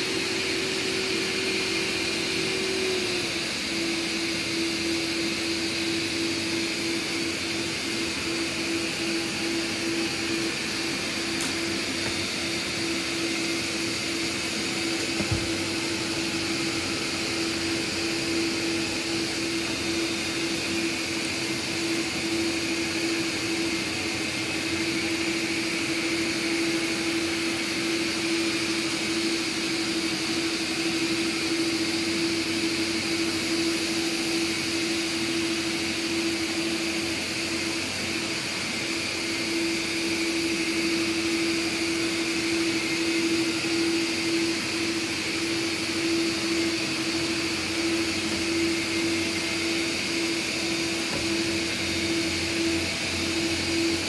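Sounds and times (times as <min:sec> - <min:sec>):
robot vacuums whirring: 0:00.0 - 0:54.0.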